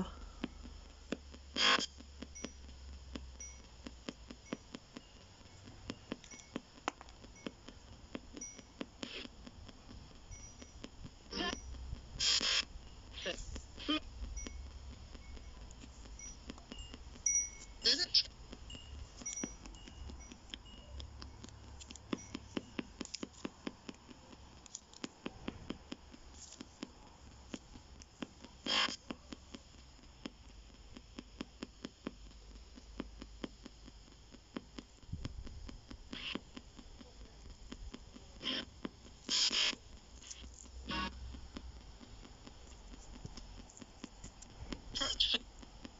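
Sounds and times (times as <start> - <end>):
fast uneven clicks: 0.0 - 45.9
radio static: 1.6 - 2.0, 11.3 - 11.6, 12.2 - 16.3, 17.8 - 18.3, 28.4 - 29.3, 36.1 - 43.0, 44.8 - 45.7.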